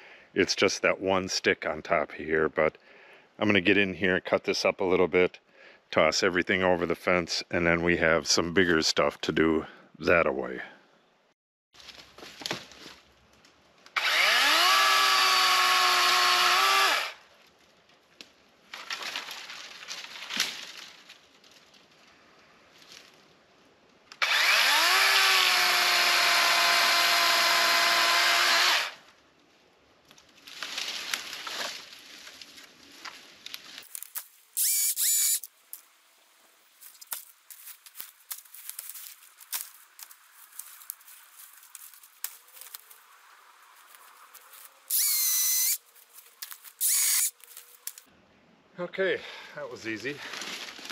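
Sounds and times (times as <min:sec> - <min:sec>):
rustling and cracking sticks: 0:11.8 - 0:14.0, 0:17.3 - 0:24.2, 0:29.0 - 0:34.6, 0:35.4 - 0:48.1, 0:50.2 - 0:50.9
chainsaw cutting branches: 0:13.9 - 0:17.2, 0:24.2 - 0:29.0, 0:33.8 - 0:35.5, 0:36.8 - 0:48.1.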